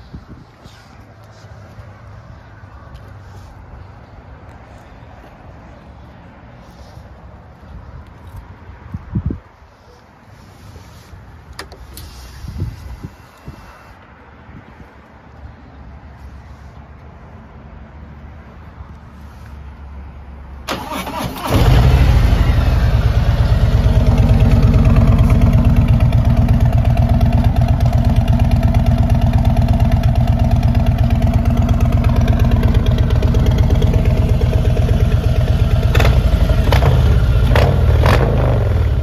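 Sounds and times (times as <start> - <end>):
motorcycle starter cranking: 20.7 - 22.1
motorcycle engine idling: 21.6 - 39.0.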